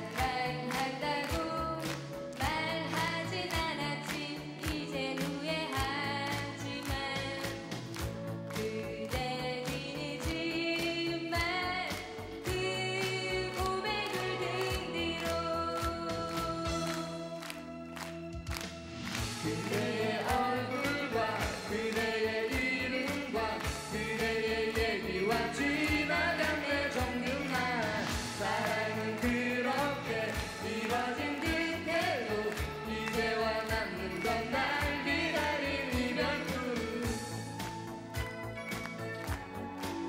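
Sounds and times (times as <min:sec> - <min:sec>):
backing music with steady beat: 0:00.0 - 0:40.0
man and woman singing duet: 0:19.4 - 0:37.5.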